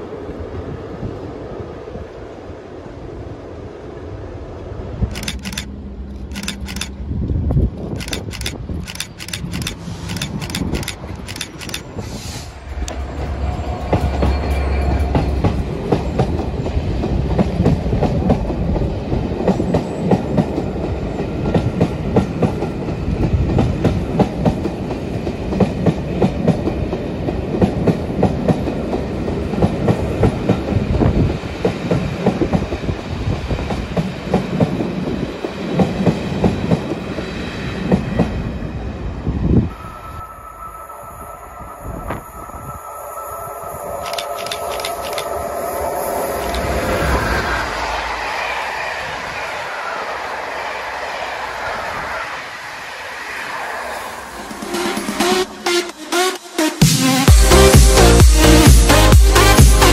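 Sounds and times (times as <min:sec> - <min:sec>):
diesel locomotive passing: 0:00.0 - 0:56.7
train wheels clicking over rail joints: 0:05.0 - 0:18.6, 0:44.0 - 0:45.4, 0:46.4 - 0:46.9.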